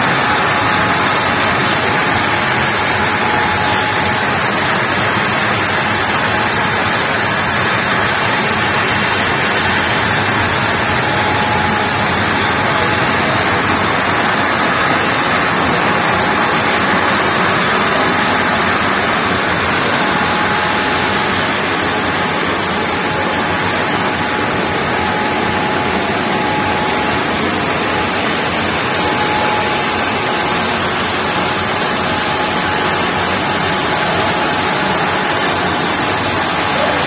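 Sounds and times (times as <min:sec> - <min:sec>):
faint high whine: 0:00.0 - 0:37.0
machine steady rushing noise: 0:00.0 - 0:37.0.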